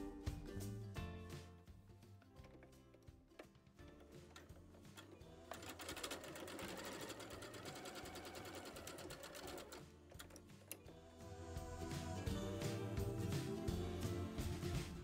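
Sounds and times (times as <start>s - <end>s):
soft background music: 0.0s - 15.0s
sewing machine stitching: 2.4s - 11.0s.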